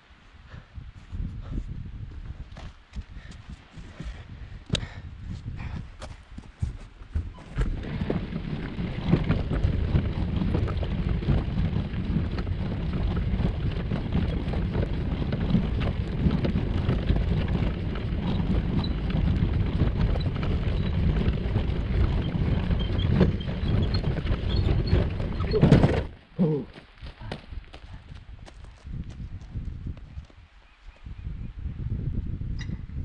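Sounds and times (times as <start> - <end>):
wind buffeting microphone: 0.0 - 33.0
wheels rumbling over gravel: 7.2 - 28.1.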